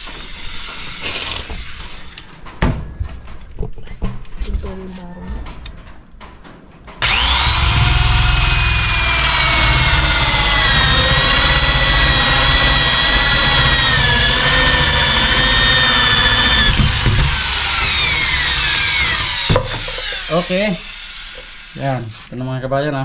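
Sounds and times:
electric drill boring through wood: 0.0 - 2.2, 7.0 - 22.3.

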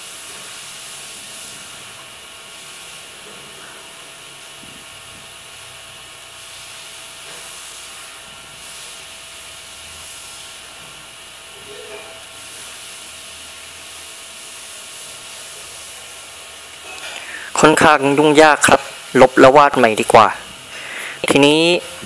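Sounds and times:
recording hiss: 0.0 - 22.0.

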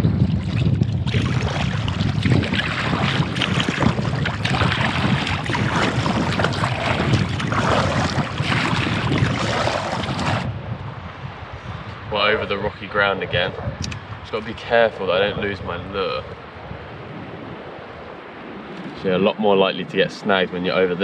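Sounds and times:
water rushing along a hull: 0.0 - 10.7
wind buffeting microphone: 0.0 - 21.0
paddle strokes splashing: 1.1 - 10.5.

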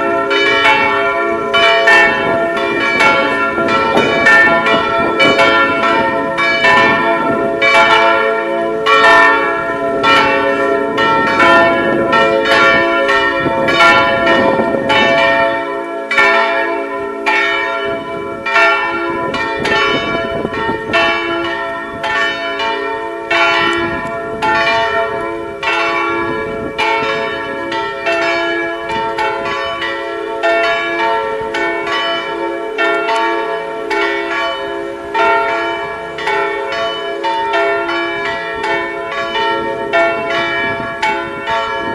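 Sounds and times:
church bells ringing: 0.0 - 41.9.

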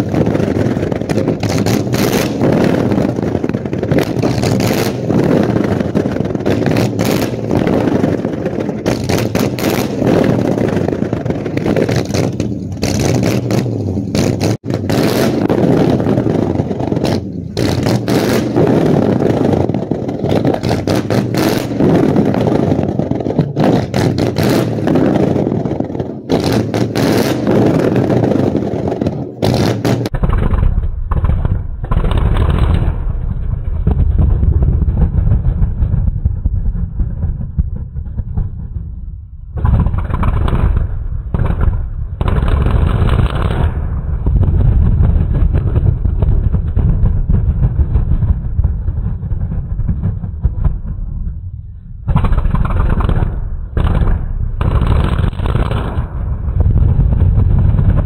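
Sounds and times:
exhaust pops: 0.0 - 28.4.

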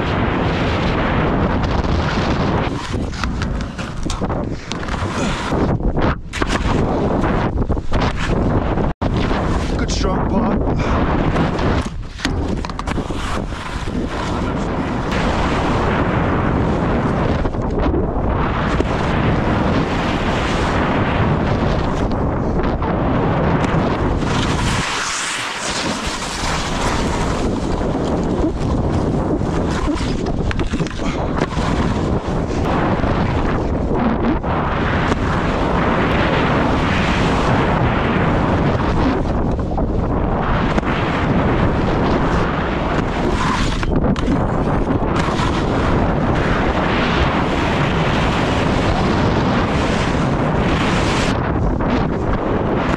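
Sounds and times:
wind buffeting microphone: 0.0 - 52.9
skis scraping over snow: 11.4 - 17.2, 23.3 - 33.7, 40.8 - 51.5
skis hissing on snow: 24.5 - 26.7.

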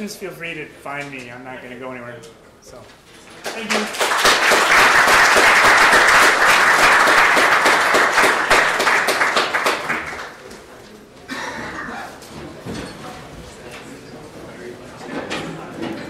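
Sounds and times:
audience applauding: 3.3 - 10.5.

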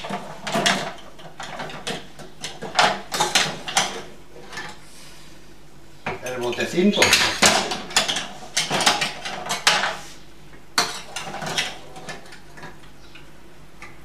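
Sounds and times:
utensils clinking on worktop: 7.0 - 10.0.

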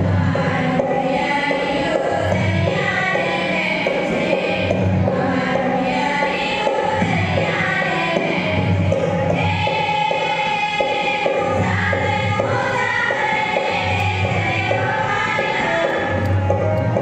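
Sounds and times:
girls singing together: 0.0 - 17.0
harmonium: 0.0 - 17.0
hand drum steady beat: 6.8 - 17.0.

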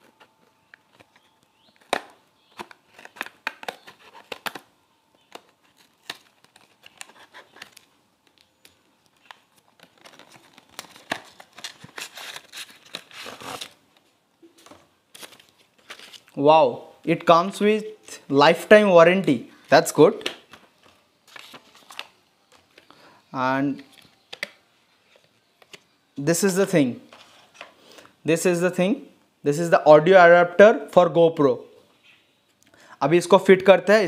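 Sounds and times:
packaging crinkling and tearing: 0.1 - 13.8, 14.6 - 16.4, 21.2 - 22.9.

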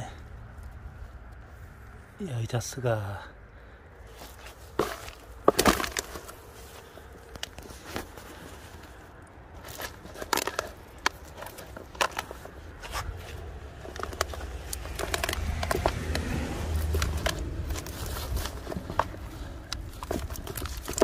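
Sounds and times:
fish trap clicking and rustling: 4.6 - 21.0
low handling rumble: 5.0 - 21.0.

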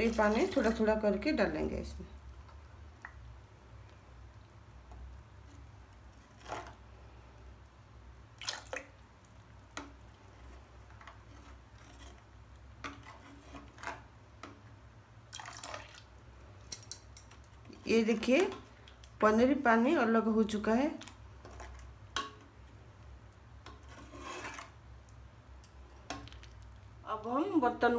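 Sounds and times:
spoon stirring milk in a metal pot: 9.2 - 14.7, 20.5 - 26.7
faint clinks and splashes: 16.6 - 17.7.

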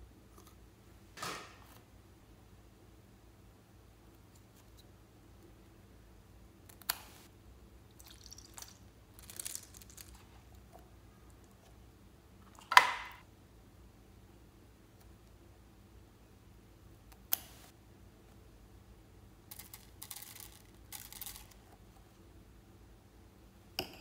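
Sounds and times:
wet squishing of gel beads: 7.9 - 10.6.

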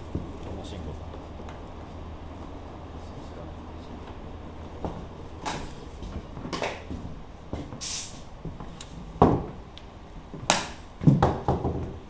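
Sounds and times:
adhesive spray hiss: 7.8 - 8.3.

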